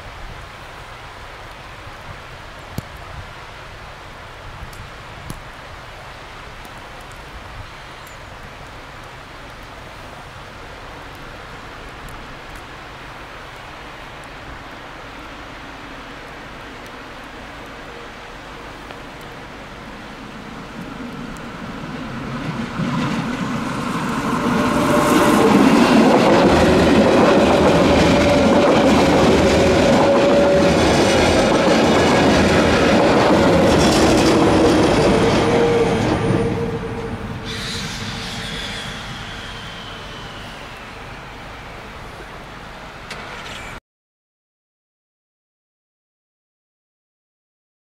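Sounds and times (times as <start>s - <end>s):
train running noise: 14.8s - 43.8s
falling whine: 17.8s - 43.8s.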